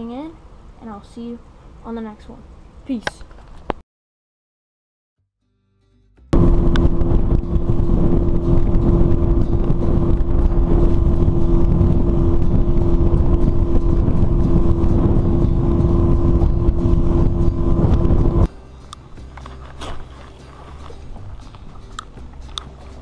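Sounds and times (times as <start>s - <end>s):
outboard motor running: 6.4s - 18.5s, 19.4s - 23.0s
rushing water noise: 6.4s - 18.5s.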